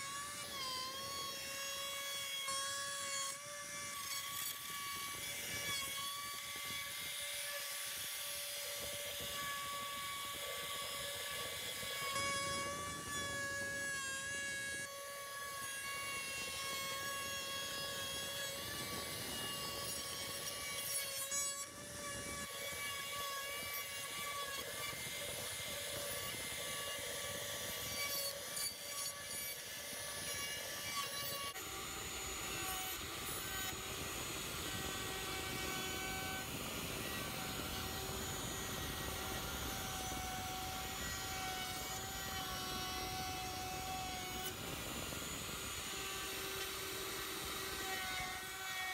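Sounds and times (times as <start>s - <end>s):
router motor whine: 0.0s - 48.9s.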